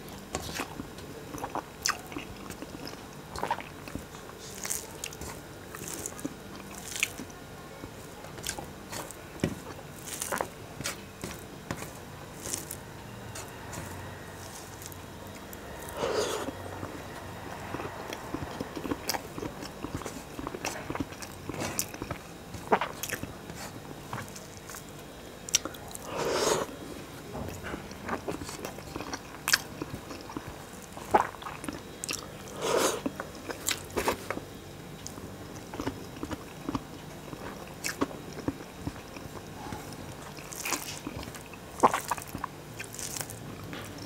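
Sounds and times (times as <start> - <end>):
chewing with mouth clicks: 0.3 - 24.9, 25.5 - 26.8, 27.5 - 34.4, 35.0 - 44.0
fingers mixing rice on metal plate: 7.9 - 16.6.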